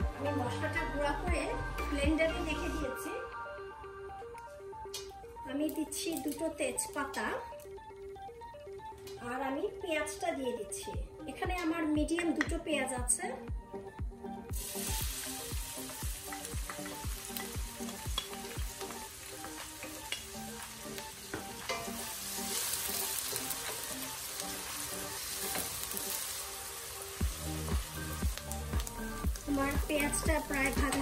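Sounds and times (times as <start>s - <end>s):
onions sizzling in oil: 14.5s - 31.0s.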